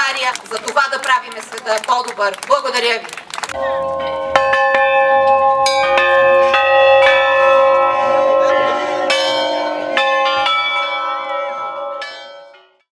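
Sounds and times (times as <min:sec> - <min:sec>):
tower bells ringing: 0:03.5 - 0:12.9.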